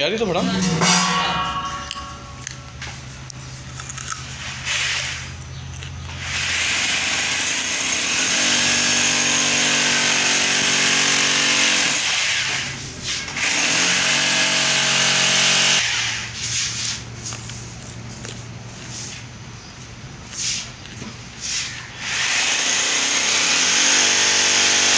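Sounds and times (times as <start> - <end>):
electric drill boring into wall: 6.2 - 12.2, 13.4 - 15.8, 22.0 - 24.9.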